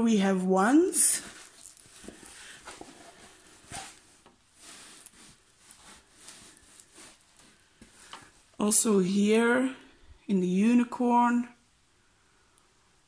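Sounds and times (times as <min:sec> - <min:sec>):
handling taps and rustles: 0:01.0 - 0:08.4.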